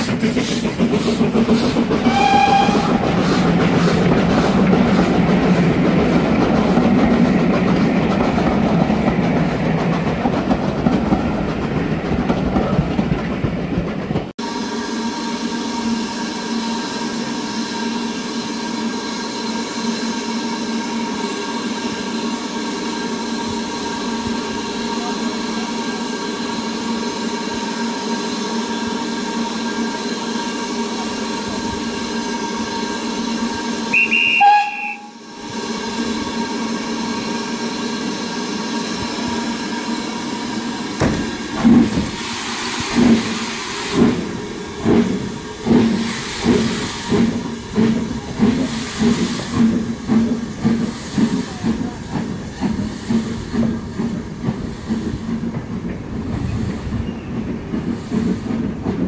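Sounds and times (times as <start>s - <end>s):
steam locomotive exhaust chuffs: 0.0s - 11.6s, 14.9s - 59.0s
steam locomotive hissing: 0.0s - 12.0s, 14.4s - 59.0s
steam whistle: 2.0s - 3.1s, 33.9s - 35.2s.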